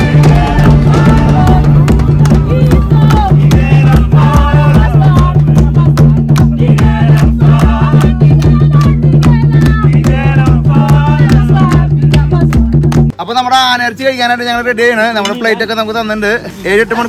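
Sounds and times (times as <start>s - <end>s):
group singing: 0.0s - 12.8s
wooden drum beats: 0.0s - 13.2s
hand-clapping: 0.2s - 13.1s.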